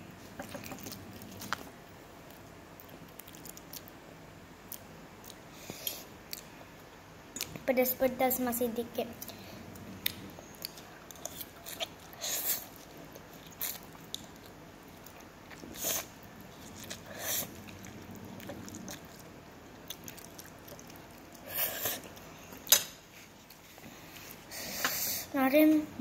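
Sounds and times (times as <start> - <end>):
chewing: 0.3 - 1.7, 2.3 - 4.0, 9.2 - 22.8
child slurping noodles: 17.0 - 17.8, 21.4 - 22.1.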